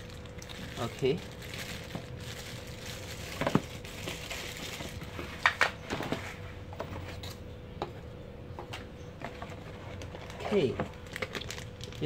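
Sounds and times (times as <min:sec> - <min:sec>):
plastic bag crinkling: 0:00.0 - 0:05.6, 0:09.5 - 0:12.0.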